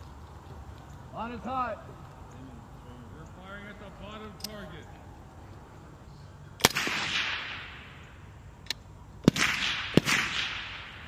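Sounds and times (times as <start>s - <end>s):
rifle shots with echo: 6.6s - 8.0s, 9.2s - 11.0s
distant rifle shot: 6.6s - 8.1s, 9.2s - 11.0s.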